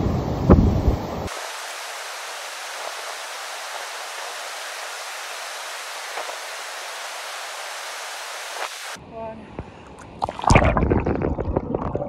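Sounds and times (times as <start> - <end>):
flowing river water: 0.0 - 9.0.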